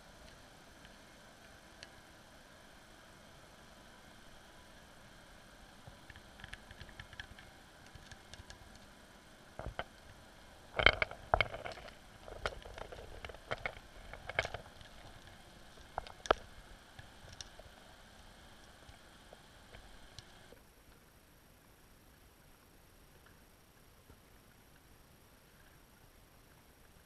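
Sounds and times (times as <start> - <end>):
faint hiss: 0.0 - 27.0
sharp clicks underwater: 5.9 - 9.0, 9.6 - 21.0.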